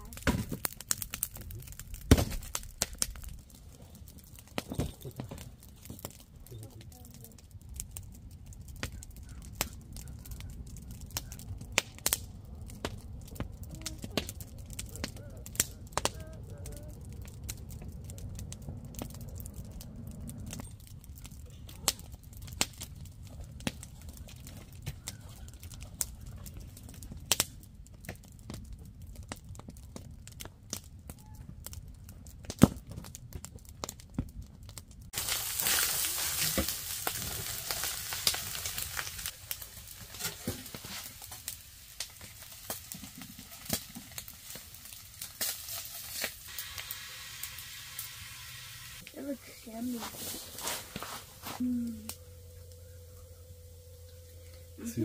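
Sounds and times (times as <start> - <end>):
campfire crackling and popping: 0.0 - 55.0
low rumble: 6.2 - 24.8, 47.5 - 55.0
food sizzling in a skillet: 35.2 - 52.1.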